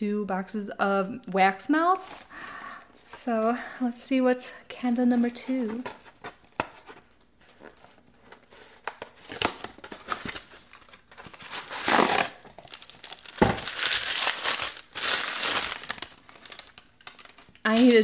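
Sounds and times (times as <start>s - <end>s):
paper packaging crinkling: 5.2s - 18.0s.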